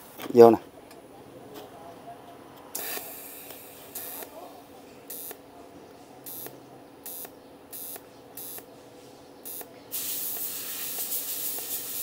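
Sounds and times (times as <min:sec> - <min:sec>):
welder arc-start crackle: 0:02.8 - 0:04.3, 0:07.1 - 0:08.6, 0:09.5 - 0:12.0
welding arc hissing: 0:02.8 - 0:04.3, 0:07.1 - 0:08.6, 0:09.5 - 0:12.0.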